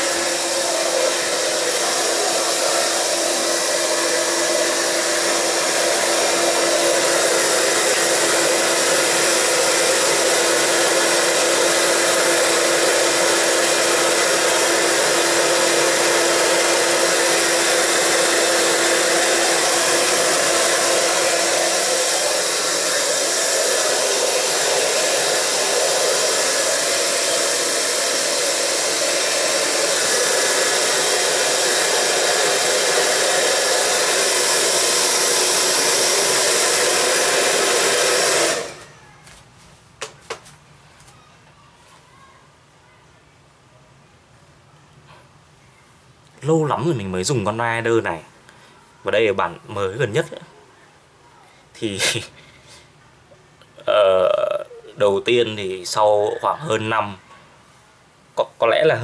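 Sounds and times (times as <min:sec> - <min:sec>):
hair dryer running: 0:00.0 - 0:39.4.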